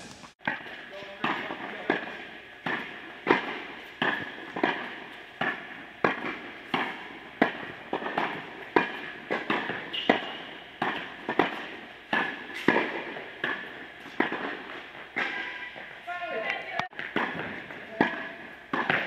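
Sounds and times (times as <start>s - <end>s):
tennis ball pops and bounces: 0.4s - 19.0s
shoe squeak: 9.9s - 10.6s, 15.3s - 15.8s.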